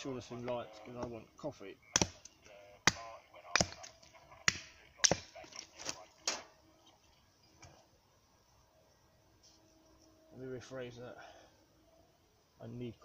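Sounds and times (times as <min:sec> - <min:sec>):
hatchet chopping kindling: 0:01.9 - 0:06.5.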